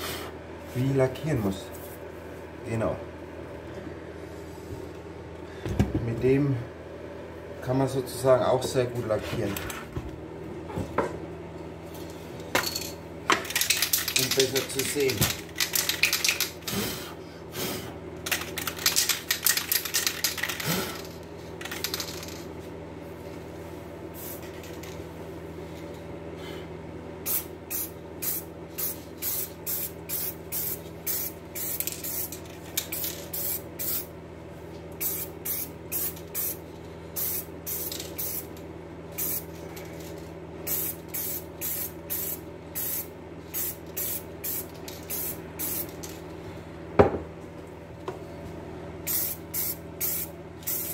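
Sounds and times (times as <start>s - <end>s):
spray paint can spraying: 27.3s - 34.1s, 35.0s - 36.6s, 37.2s - 38.5s, 40.7s - 46.0s, 49.1s - 50.9s.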